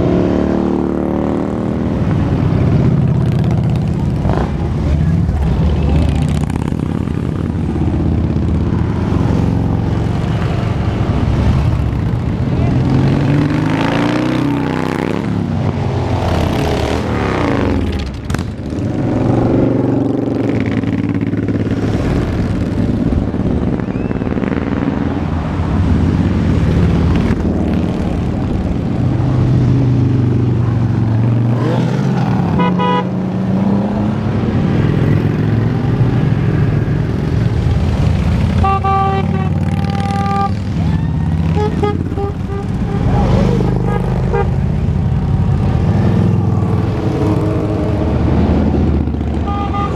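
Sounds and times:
motorcycles riding past: 0:00.0 - 0:49.9
horn beeping: 0:32.6 - 0:33.1, 0:38.6 - 0:40.7, 0:41.4 - 0:44.6, 0:49.4 - 0:49.9.

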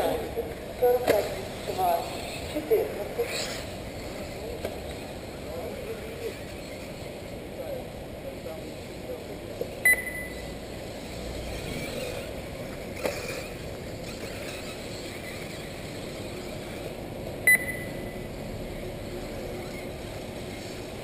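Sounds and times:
rc cars running: 0:00.0 - 0:21.0
short high electronic beep: 0:09.9 - 0:10.5, 0:17.5 - 0:18.3.

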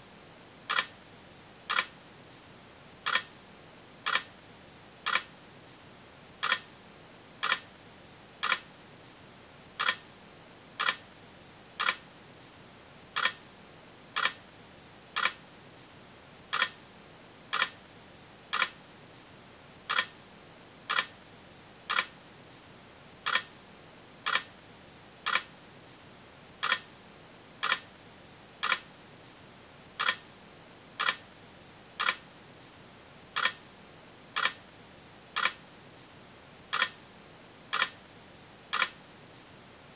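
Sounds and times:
faint steady hiss: 0:00.0 - 0:39.9
sharp regular ticks: 0:00.7 - 0:00.9, 0:01.7 - 0:01.9, 0:03.0 - 0:03.3, 0:04.0 - 0:04.3, 0:05.0 - 0:05.3, 0:06.4 - 0:06.7, 0:07.4 - 0:07.7, 0:08.4 - 0:08.7, 0:09.8 - 0:10.0, 0:10.8 - 0:11.0, 0:11.8 - 0:12.0, 0:13.2 - 0:13.4, 0:14.2 - 0:14.4, 0:15.2 - 0:15.4, 0:16.5 - 0:16.8, 0:17.5 - 0:17.8, 0:18.5 - 0:18.8, 0:19.9 - 0:20.1, 0:20.9 - 0:21.1, 0:21.9 - 0:22.1, 0:23.2 - 0:23.5, 0:24.2 - 0:24.5, 0:25.2 - 0:25.5, 0:26.6 - 0:26.9, 0:27.6 - 0:27.9, 0:28.6 - 0:28.9, 0:30.0 - 0:30.2, 0:31.0 - 0:31.2, 0:32.0 - 0:32.3, 0:33.4 - 0:33.6, 0:34.4 - 0:34.6, 0:35.4 - 0:35.6, 0:36.7 - 0:37.0, 0:37.7 - 0:38.0, 0:38.7 - 0:39.0.

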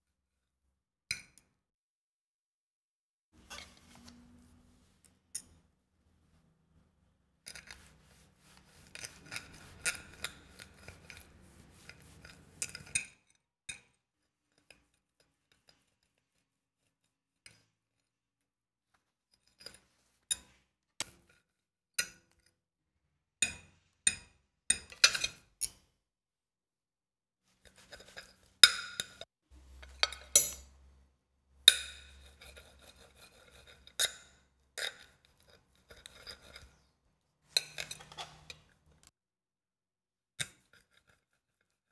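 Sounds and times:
knife and fork scraping a plate: 0:03.4 - 0:04.4, 0:07.5 - 0:13.3, 0:24.9 - 0:25.5, 0:27.6 - 0:30.7, 0:31.7 - 0:39.1, 0:40.4 - 0:41.8.

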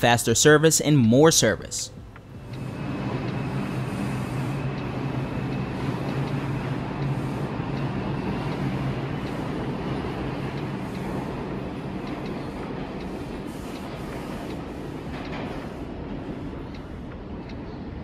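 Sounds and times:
subway train rumbling past: 0:01.9 - 0:18.0.

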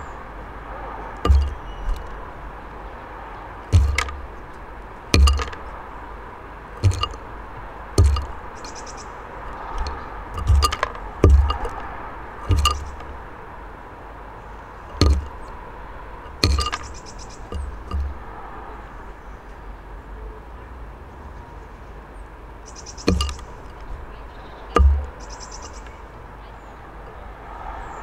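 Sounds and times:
bird bill knocking on seeds: 0:01.2 - 0:02.2, 0:03.7 - 0:04.6, 0:05.2 - 0:05.8, 0:06.8 - 0:07.2, 0:08.0 - 0:08.8, 0:09.6 - 0:13.2, 0:14.9 - 0:15.5, 0:16.2 - 0:18.2, 0:23.0 - 0:23.8, 0:24.8 - 0:26.0.

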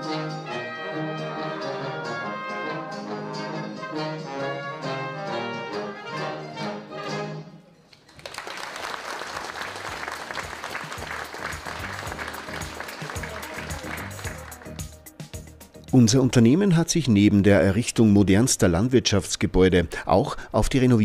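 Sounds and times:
orchestral music: 0:00.0 - 0:07.7, 0:09.4 - 0:16.3
audience applause: 0:08.0 - 0:14.9.

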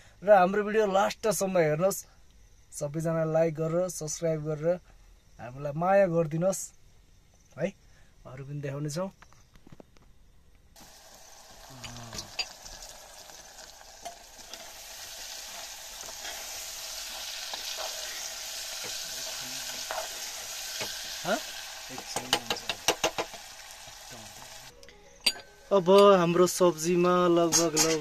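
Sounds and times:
vegetables sizzling in a pot: 0:10.8 - 0:24.8, 0:25.6 - 0:28.0
spoon knocking a pot: 0:22.0 - 0:23.4, 0:27.4 - 0:28.0.

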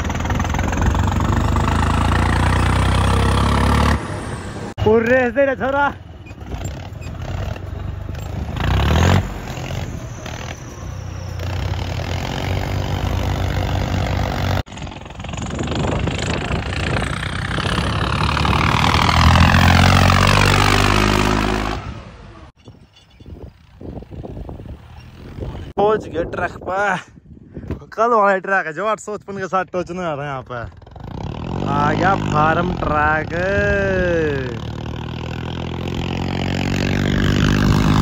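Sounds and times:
tractor diesel engine revving: 0:00.0 - 0:04.8, 0:05.6 - 0:22.6, 0:30.7 - 0:38.0.

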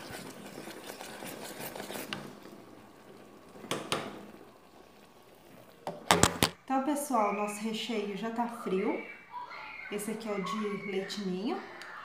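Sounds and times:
wooden spoon scraping saucepan: 0:00.0 - 0:02.4.

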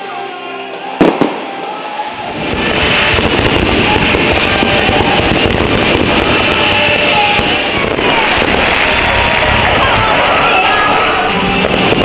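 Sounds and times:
fireworks crackling and rumbling: 0:00.0 - 0:12.0
music: 0:00.0 - 0:12.0
firework bang: 0:01.0 - 0:12.0.

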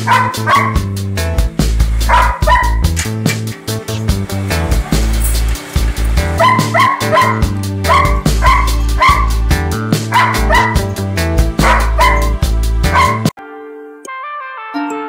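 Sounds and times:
background music: 0:00.0 - 0:15.0
dog yipping: 0:00.1 - 0:00.9, 0:02.1 - 0:02.9, 0:06.4 - 0:09.4, 0:10.1 - 0:10.9, 0:11.6 - 0:13.3.

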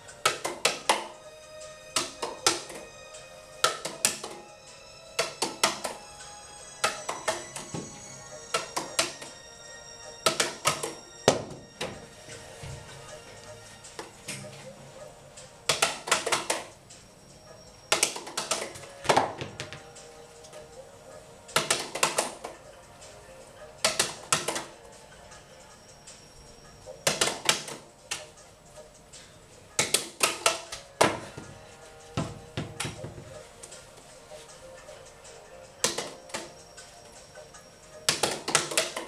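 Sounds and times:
faint background music: 0:00.0 - 0:39.0
juggling clubs clacking: 0:00.1 - 0:01.2, 0:01.9 - 0:02.9, 0:03.6 - 0:04.4, 0:05.2 - 0:06.0, 0:06.8 - 0:09.4, 0:10.2 - 0:12.0, 0:15.6 - 0:16.8, 0:17.9 - 0:20.6, 0:21.5 - 0:22.6, 0:23.8 - 0:24.8, 0:27.0 - 0:28.5, 0:29.1 - 0:31.6, 0:32.2 - 0:34.0, 0:38.1 - 0:39.0.

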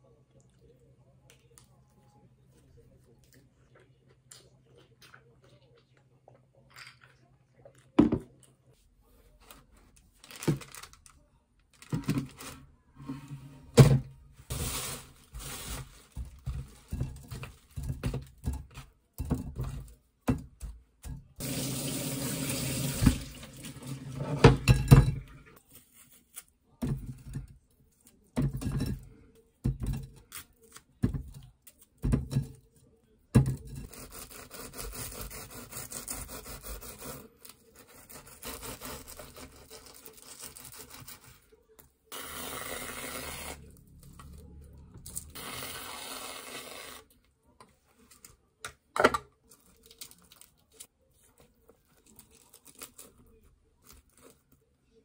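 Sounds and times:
tap water running: 0:21.4 - 0:24.7
knife sawing through bread: 0:33.9 - 0:41.3.

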